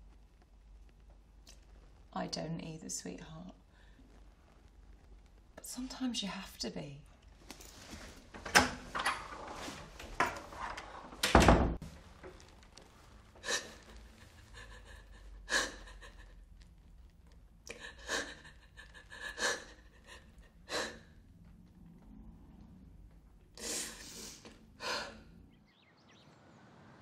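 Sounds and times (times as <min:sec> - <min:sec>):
door shutting with heavy thud: 0:08.4 - 0:11.8
woman sobbing: 0:13.4 - 0:16.4, 0:17.7 - 0:21.1.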